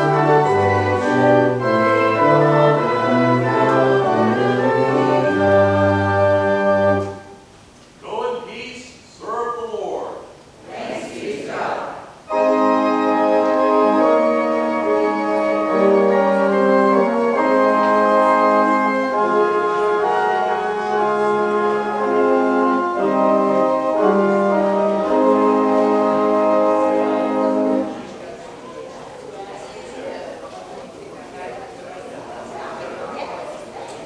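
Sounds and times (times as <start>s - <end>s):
organ playing slow chords: 0.0s - 7.5s, 12.1s - 28.2s.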